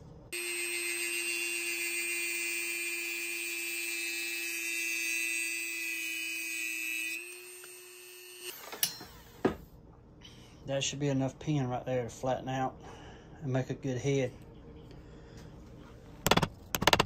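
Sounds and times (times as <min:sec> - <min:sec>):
rotary tool grinding metal: 0:00.4 - 0:09.3.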